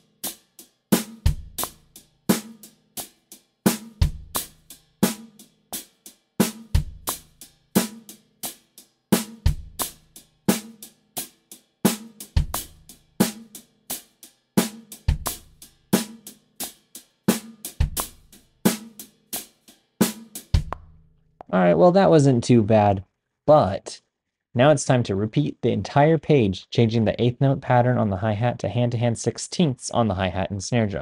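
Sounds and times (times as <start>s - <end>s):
drum kit funk groove: 0.0s - 20.8s.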